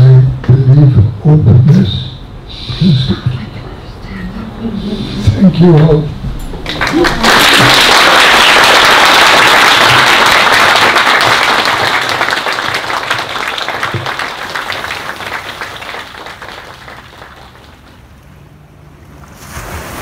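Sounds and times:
audience applauding: 6.6s - 18.1s.

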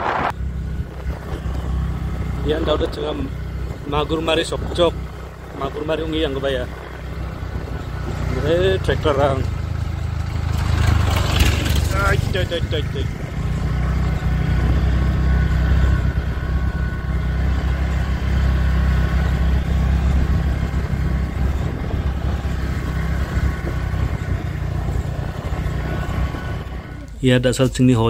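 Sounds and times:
wind and road noise: 0.0s - 28.0s
scooter engine running: 0.4s - 27.2s.

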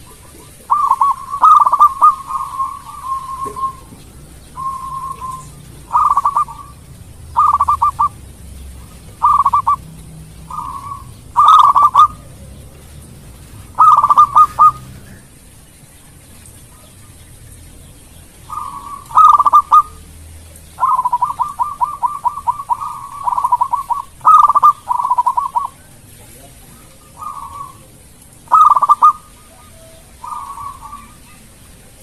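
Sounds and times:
dove cooing: 0.0s - 15.4s, 18.5s - 20.1s, 20.7s - 32.0s.

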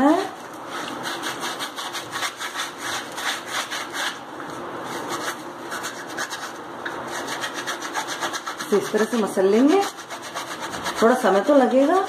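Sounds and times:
scouring pad scraping metal: 7.1s - 12.0s.

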